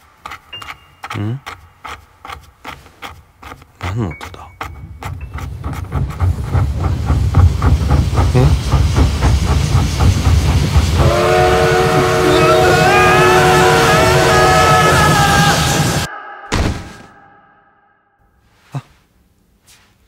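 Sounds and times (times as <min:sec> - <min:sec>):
rhythmic chugging strokes: 0:04.2 - 0:16.0.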